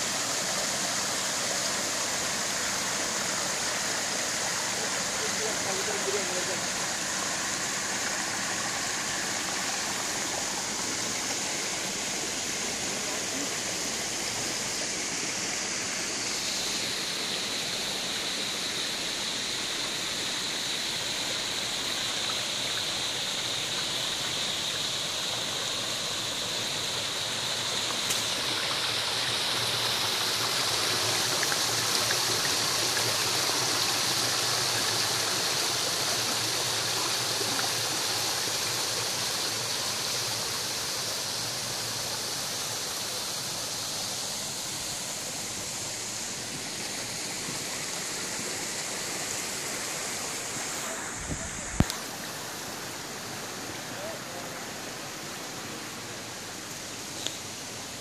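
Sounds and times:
water splashing over rocks: 0:21.4 - 0:54.0.

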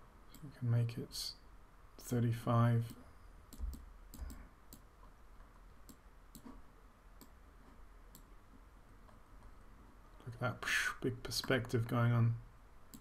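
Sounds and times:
low steady hum: 0:00.0 - 0:13.0
computer mouse clicks: 0:02.8 - 0:06.6, 0:07.2 - 0:08.4.

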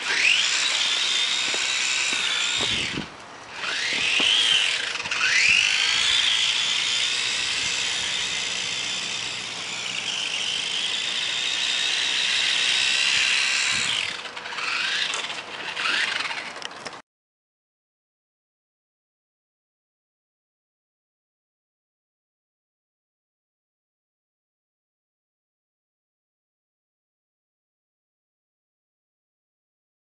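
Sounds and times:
rc car motor whining: 0:00.0 - 0:17.0.

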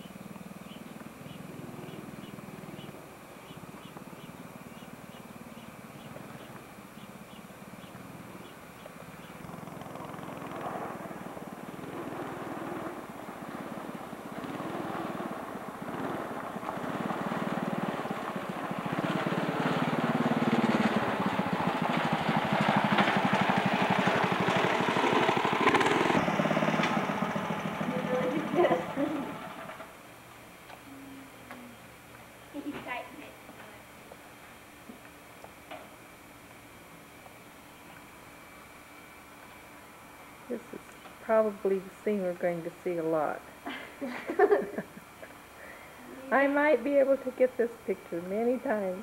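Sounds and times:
go-kart engine running: 0:00.0 - 0:30.0.

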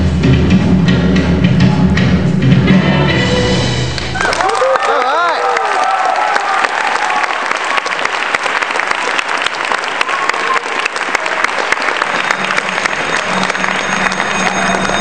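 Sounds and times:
audience applauding: 0:04.0 - 0:15.0.

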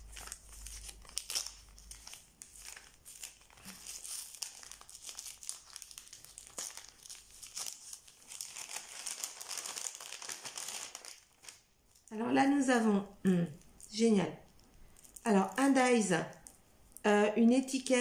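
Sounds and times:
paper and plastic wrapping rustling: 0:00.0 - 0:12.1.

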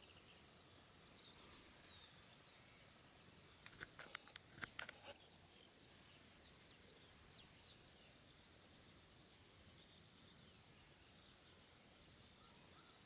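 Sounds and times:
distant bird chirps: 0:00.0 - 0:13.0
sharp clicks: 0:03.6 - 0:05.2.

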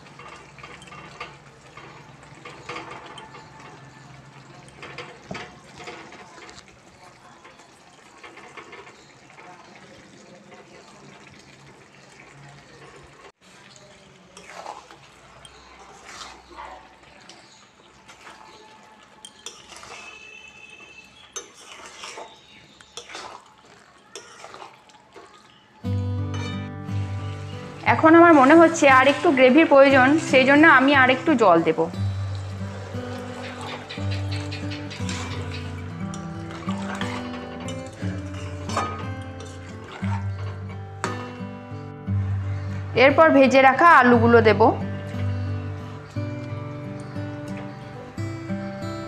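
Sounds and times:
gravy bubbling in wok: 0:00.0 - 0:26.0, 0:26.8 - 0:43.0
metallic ring: 0:26.3 - 0:26.7.

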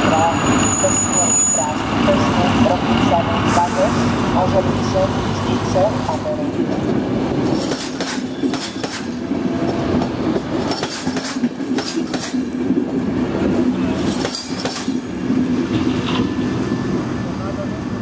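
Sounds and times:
faint high wheel squeal: 0:00.0 - 0:02.3
train coaches rolling past: 0:00.0 - 0:18.0
wheels clacking over rail joints: 0:06.6 - 0:16.5.

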